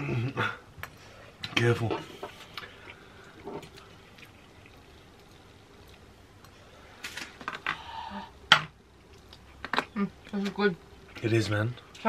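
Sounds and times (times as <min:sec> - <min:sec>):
chewing and mouth noises: 0:02.5 - 0:06.1.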